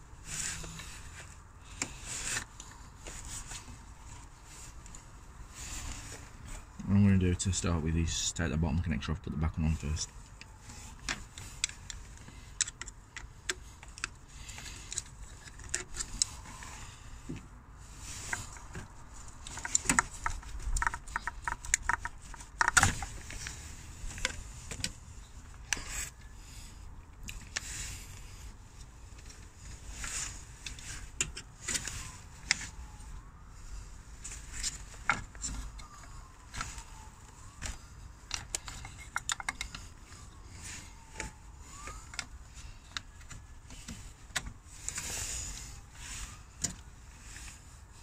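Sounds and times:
plastic connectors clicking: 19.5 - 23.5, 37.4 - 39.9.

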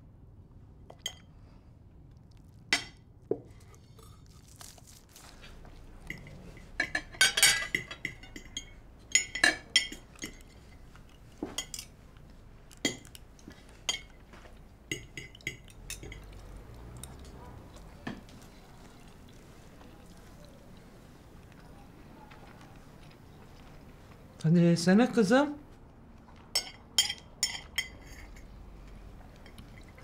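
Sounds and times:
cutlery clinking on plates: 6.0 - 12.0, 12.7 - 17.4, 26.5 - 28.6.

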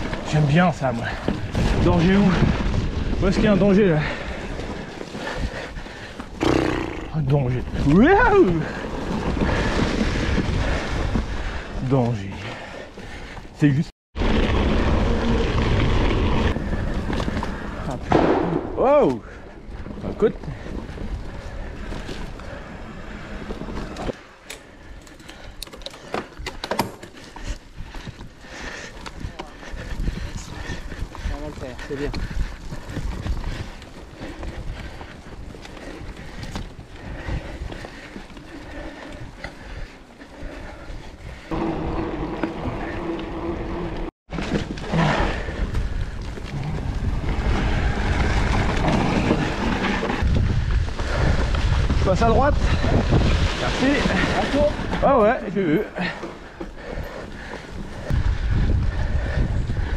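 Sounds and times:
mountain bike tyres rumbling: 0.0 - 59.9
bike clicks and rattles: 8.5 - 18.1, 19.7 - 59.9
wind on microphone: 45.2 - 55.0, 57.8 - 59.9.

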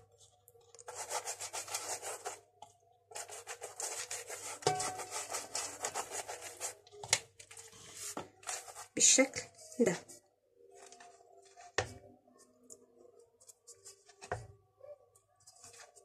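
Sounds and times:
pastry brush swishing: 3.1 - 6.8.

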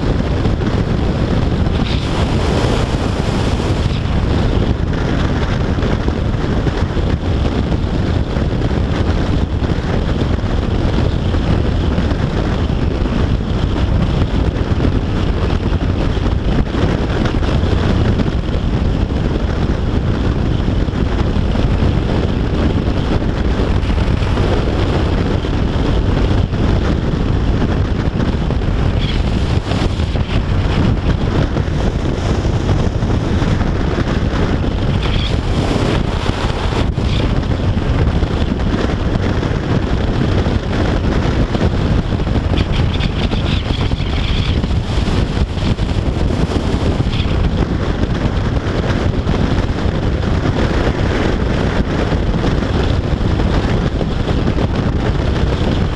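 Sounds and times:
wind noise on microphone: 0.0 - 55.9
motorcycle engine: 19.2 - 51.2.

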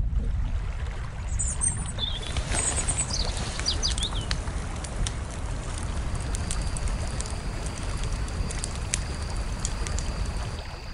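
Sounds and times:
low outdoor rumble: 0.0 - 10.9
small birds chirping: 1.4 - 4.5
light ticks: 2.2 - 10.9.

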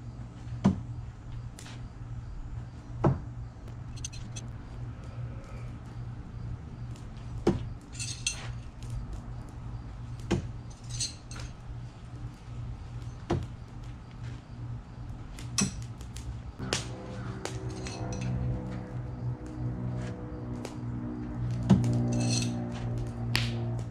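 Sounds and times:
metallic clink of blade: 17.6 - 18.4.

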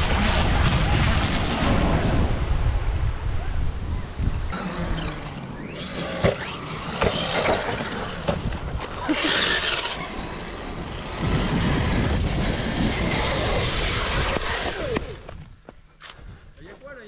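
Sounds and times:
toy truck motor: 4.6 - 15.1.

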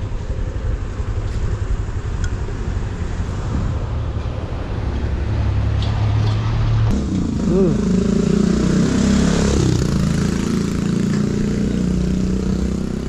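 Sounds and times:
wind rumble: 0.0 - 7.5
road noise: 0.0 - 13.0.

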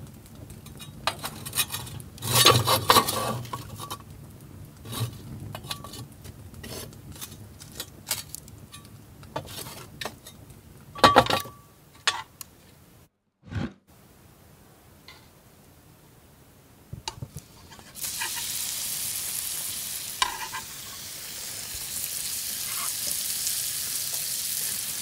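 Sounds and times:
charcoal coals clattering: 0.0 - 12.4, 17.0 - 21.1
metal tongs scraping on metal: 20.2 - 20.7.

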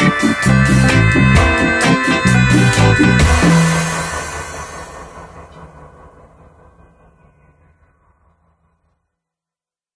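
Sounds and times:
dub reggae track with bass: 0.0 - 5.7.

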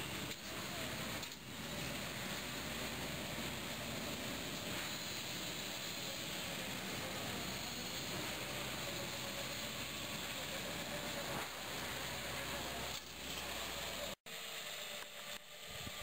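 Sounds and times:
quiet uneven noise: 0.0 - 14.2
electric tractor plowing soil: 0.0 - 16.0.

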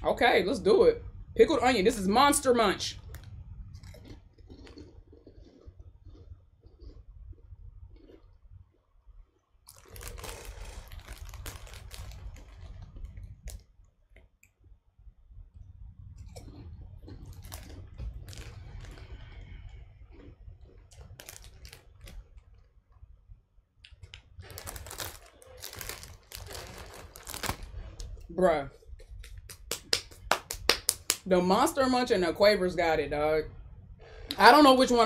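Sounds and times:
crunching snack chewing: 3.0 - 14.6, 16.2 - 22.7, 23.8 - 28.3.

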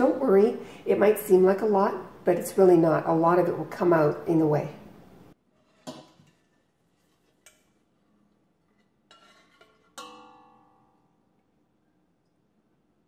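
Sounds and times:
ladle clinking on pot: 9.1 - 11.0
metallic ringing: 10.0 - 11.4.

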